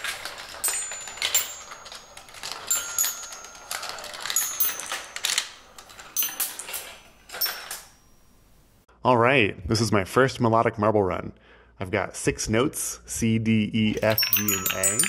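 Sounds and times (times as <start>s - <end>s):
marbles clattering on track: 0.0s - 8.0s, 13.9s - 15.0s
high metallic rings: 0.3s - 8.8s, 14.0s - 15.0s.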